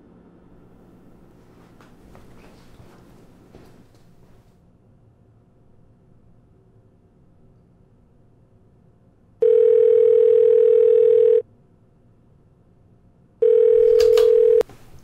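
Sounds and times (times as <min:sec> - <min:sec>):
telephone ringback tone: 0:09.4 - 0:11.4, 0:13.4 - 0:14.7.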